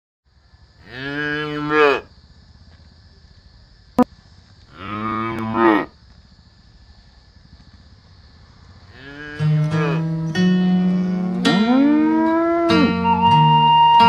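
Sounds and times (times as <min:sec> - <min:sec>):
buffalo mooing: 0:09.0 - 0:14.0.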